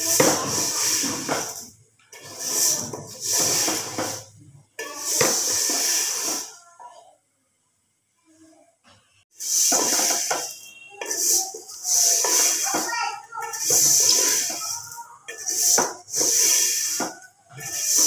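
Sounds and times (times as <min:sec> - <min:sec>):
wooden spoon stirring: 0:00.0 - 0:06.6, 0:09.4 - 0:18.0
noodles sizzling in oil: 0:00.0 - 0:06.8, 0:09.3 - 0:18.0.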